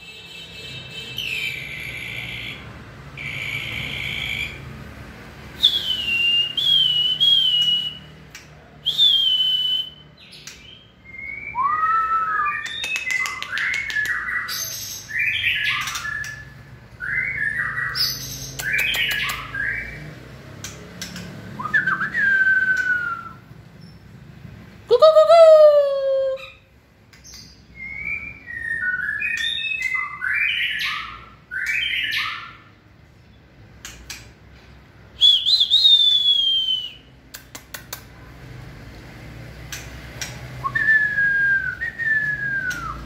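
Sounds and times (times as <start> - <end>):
songbird whistling and clicking: 5.6 - 20.0, 20.6 - 24.0, 26.4 - 32.4, 33.8 - 34.4, 35.2 - 38.1, 39.7 - 43.0.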